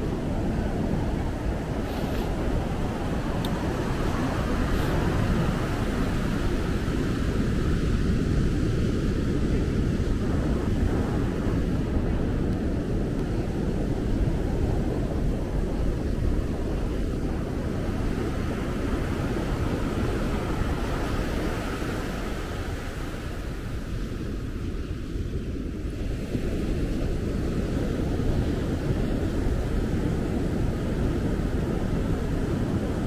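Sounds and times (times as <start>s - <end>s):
ocean surf rushing: 0.0s - 24.1s
wind buffeting microphone: 0.0s - 33.0s.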